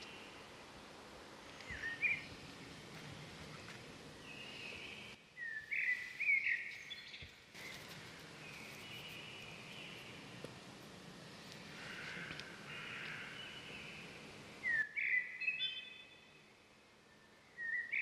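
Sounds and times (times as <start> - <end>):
birds chirping: 1.4 - 10.6, 11.2 - 16.4.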